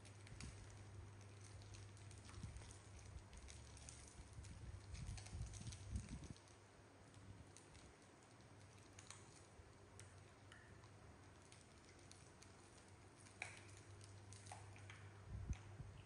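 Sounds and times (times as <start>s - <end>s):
plastic wrappers crinkling: 0.0s - 10.7s
low steady hum: 0.0s - 16.0s.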